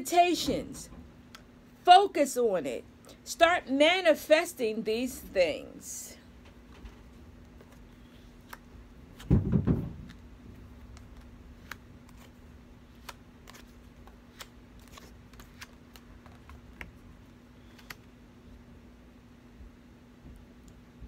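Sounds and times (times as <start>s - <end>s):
faint steady hum: 0.0s - 21.0s
cards clicking and snapping: 8.4s - 9.3s, 10.8s - 17.0s, 17.6s - 18.1s
dull thumps: 9.2s - 10.1s.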